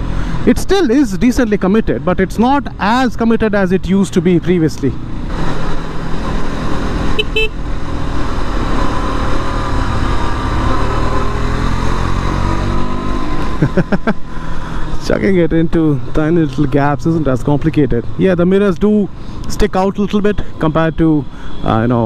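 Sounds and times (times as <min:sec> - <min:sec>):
vehicle horn toot: 0:07.2 - 0:07.6.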